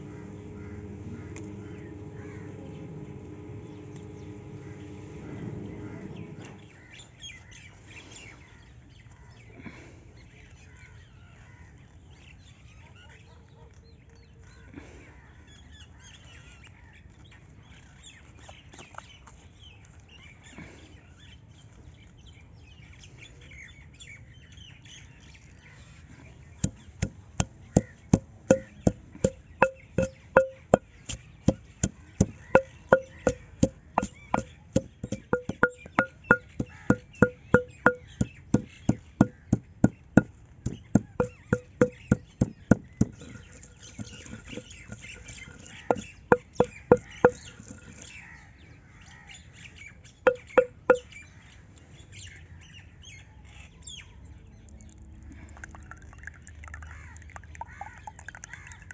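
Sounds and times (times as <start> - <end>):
pestle pounding in stone mortar: 26.6 - 48.0, 50.3 - 51.0.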